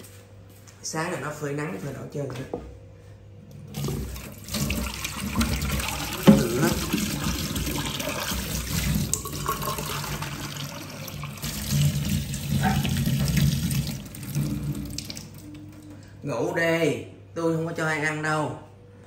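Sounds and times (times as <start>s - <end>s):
tap water splashing into pot: 3.8s - 15.6s.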